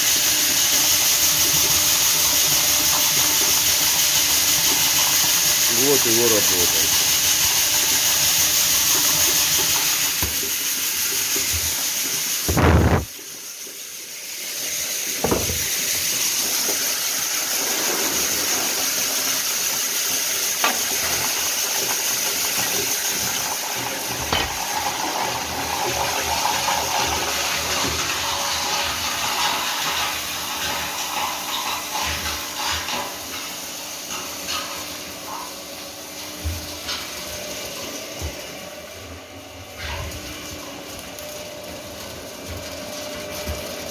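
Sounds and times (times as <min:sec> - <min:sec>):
grain churning and pouring: 0:00.1 - 0:13.2, 0:15.0 - 0:23.2
loud thump: 0:15.2 - 0:15.7.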